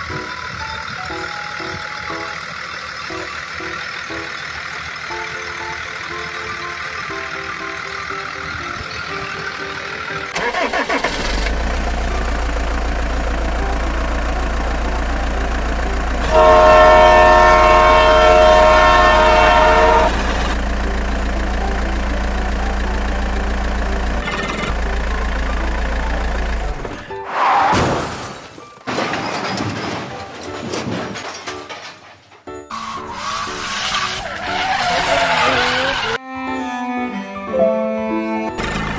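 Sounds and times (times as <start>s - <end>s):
truck engine rumble: 0.0s - 36.2s, 38.5s - 38.9s
truck horn blast: 16.2s - 20.6s, 32.7s - 36.2s.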